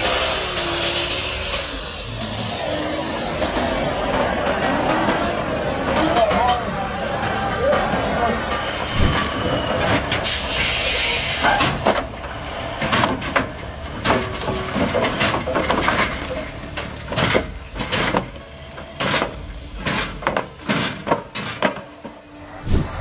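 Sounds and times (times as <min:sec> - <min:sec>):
concrete pipes knocking and clattering: 0:11.5 - 0:22.2.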